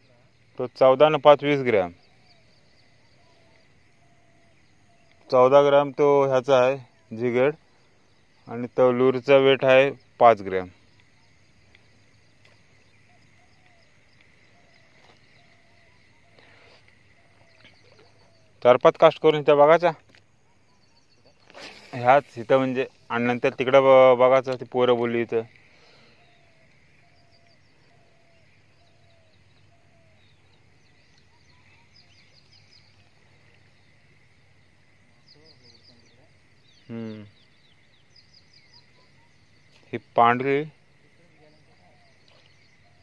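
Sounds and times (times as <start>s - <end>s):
soft ticks: 13.2s - 14.4s.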